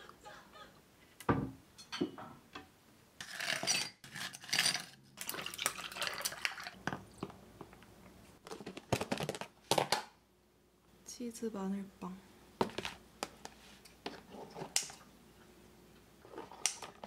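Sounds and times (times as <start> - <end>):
ice cubes clinking in glass: 3.2 - 6.8
water pouring over ice: 5.2 - 6.8.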